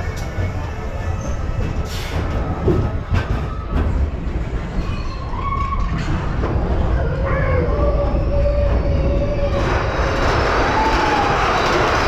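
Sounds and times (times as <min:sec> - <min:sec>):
roller coaster cars rumbling: 0:00.0 - 0:12.0
track clacks: 0:00.0 - 0:12.0.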